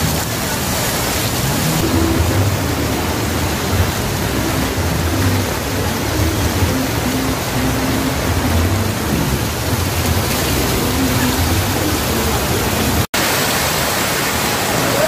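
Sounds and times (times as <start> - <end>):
heavy rain pouring: 0.0 - 15.0
low hum: 1.6 - 13.0.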